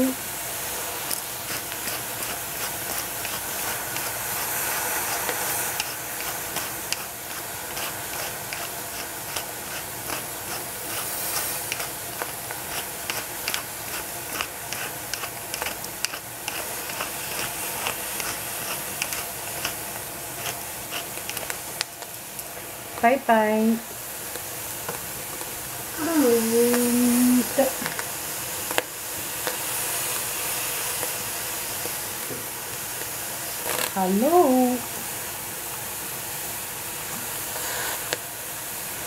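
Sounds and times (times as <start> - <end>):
pot hissing on heat: 0.0 - 39.0
pepper grinder clicking: 5.1 - 21.9.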